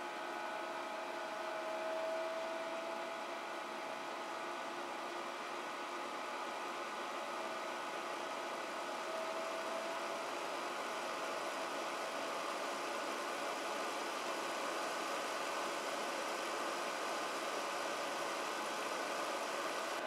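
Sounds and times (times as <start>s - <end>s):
fan whirring: 0.0s - 20.0s
compressor hum: 7.4s - 20.0s.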